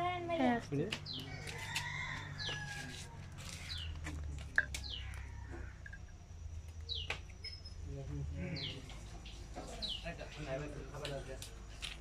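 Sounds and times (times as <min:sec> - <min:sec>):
bird calling: 0:04.6 - 0:06.2.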